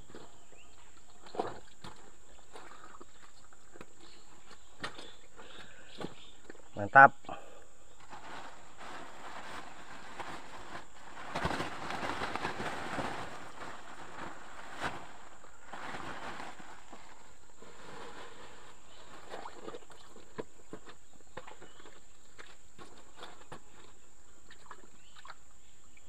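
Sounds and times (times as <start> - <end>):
hands squelching in mud and water: 0.0 - 6.6.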